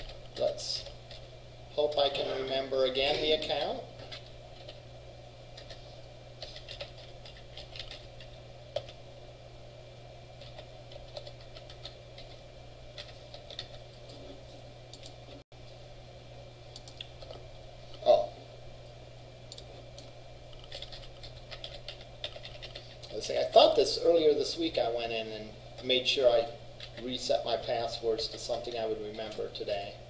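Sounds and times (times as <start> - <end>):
steady low hum: 0.0 - 30.0
keyboard typing: 5.6 - 5.8, 6.4 - 9.0, 10.4 - 14.0, 19.5 - 23.2, 26.8 - 27.1.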